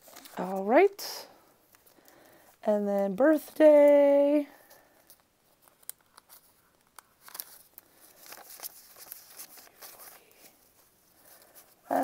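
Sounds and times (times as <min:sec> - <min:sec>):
banknotes rustling and crinkling: 0:00.0 - 0:12.0.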